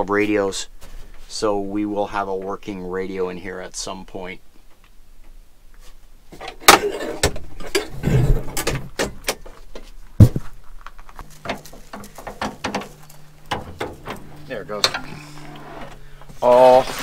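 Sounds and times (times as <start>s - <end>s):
car body parts rattling: 6.4s - 17.0s
low steady hum: 10.0s - 17.0s
sharp knocks: 11.2s - 16.4s.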